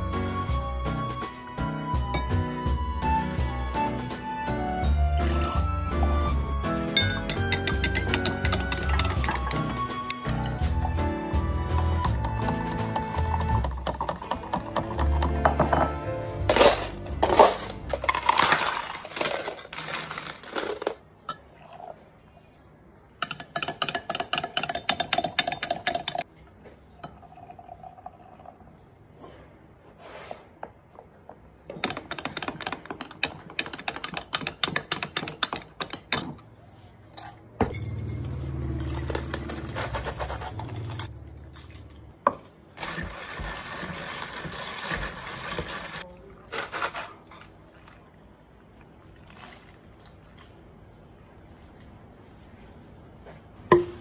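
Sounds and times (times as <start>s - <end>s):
spoon stirring in glass jug: 7.0s - 9.6s, 23.2s - 26.2s
ice cubes clinking: 7.0s - 9.7s, 16.4s - 21.5s, 37.2s - 42.2s, 42.8s - 48.1s
milk pouring over ice: 42.8s - 50.7s.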